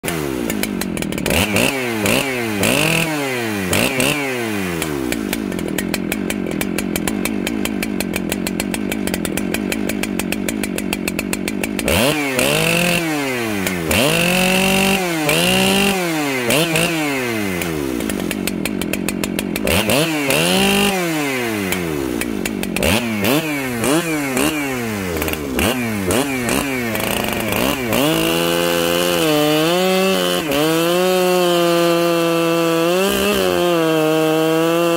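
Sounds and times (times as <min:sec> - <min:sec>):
chainsaw cutting log: 0:00.0 - 0:34.9.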